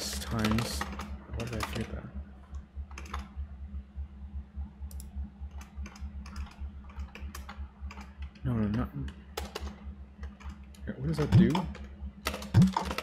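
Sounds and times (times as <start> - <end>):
computer keyboard typing: 0.0 - 1.9, 2.5 - 3.3, 4.9 - 8.8, 9.4 - 13.0
steady low hum: 0.0 - 13.0.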